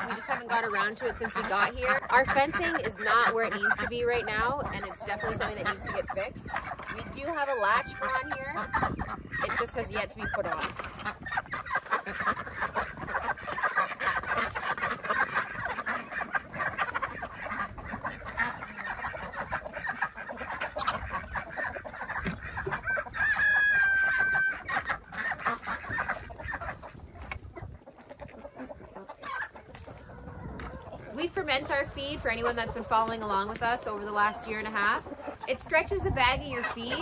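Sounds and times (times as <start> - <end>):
chickens clucking: 0.0 - 37.0
rooster crowing: 22.8 - 24.6.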